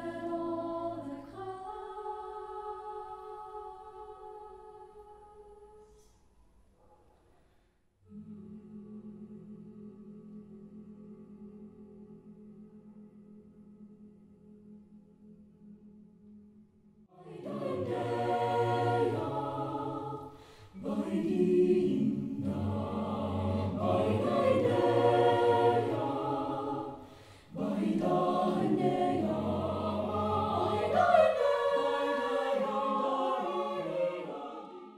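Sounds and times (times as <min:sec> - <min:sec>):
choir singing a cappella: 0:00.0 - 0:06.1, 0:08.0 - 0:34.9
singers breathing: 0:20.2 - 0:20.8, 0:27.0 - 0:27.6.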